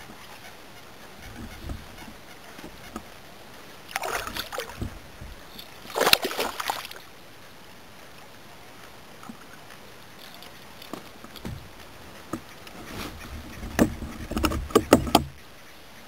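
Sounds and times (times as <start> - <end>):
fish thrashing and splashing: 3.9 - 7.0.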